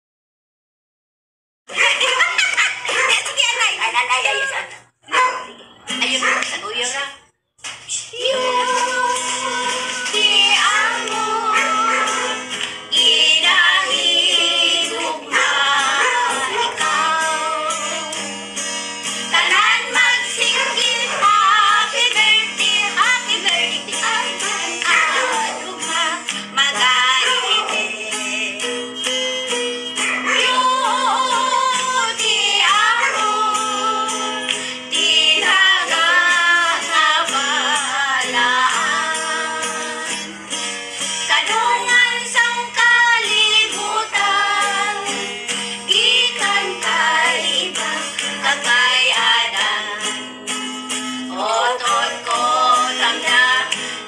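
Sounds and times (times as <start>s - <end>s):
acoustic guitar: 7.6s - 54.0s
women singing together: 8.1s - 18.2s, 19.3s - 28.6s, 30.1s - 40.3s, 41.3s - 45.3s, 45.9s - 50.2s, 51.3s - 54.0s.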